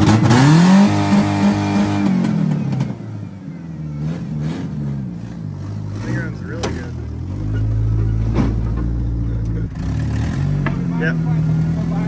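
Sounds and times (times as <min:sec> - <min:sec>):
pickup engine revving and idling: 0:00.0 - 0:12.0.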